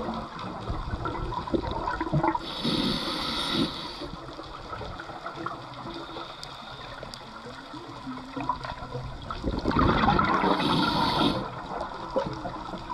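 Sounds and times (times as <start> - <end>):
low underwater wash: 0.0 - 12.9
diver exhaling bubbles: 9.4 - 11.6.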